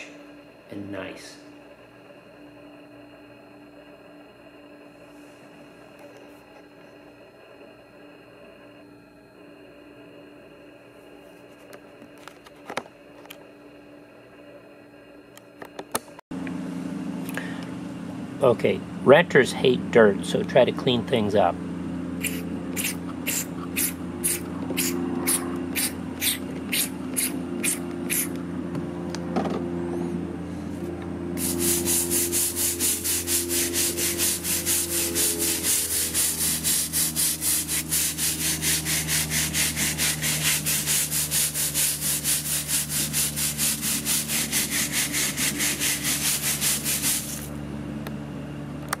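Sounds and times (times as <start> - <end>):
low hum: 21.5 - 48.6
spray bottle squirting: 22.2 - 28.4, 31.4 - 47.5
brush scrubbing hard surface: 31.4 - 47.5.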